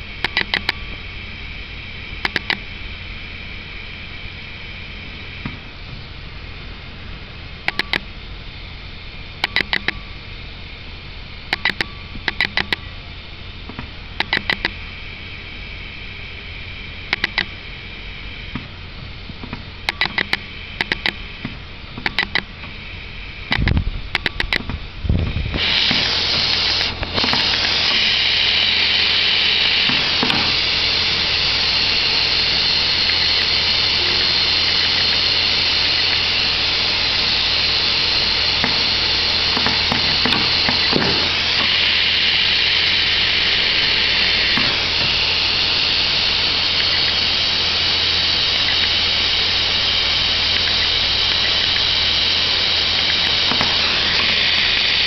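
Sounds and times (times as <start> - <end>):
low hum: 0.0 - 55.0
hot air hissing from nozzle: 25.3 - 55.0.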